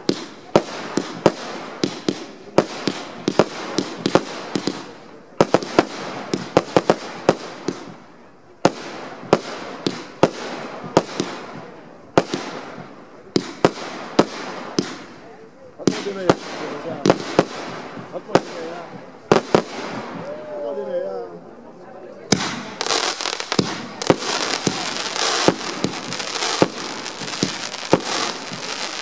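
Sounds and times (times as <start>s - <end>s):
firework bangs: 0.0s - 20.6s, 22.2s - 29.0s
rushing hiss: 22.4s - 29.0s.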